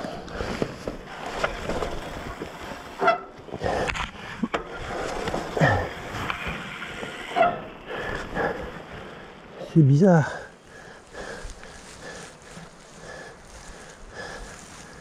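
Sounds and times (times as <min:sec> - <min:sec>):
clothing and leaves rustling: 0:04.1 - 0:15.0.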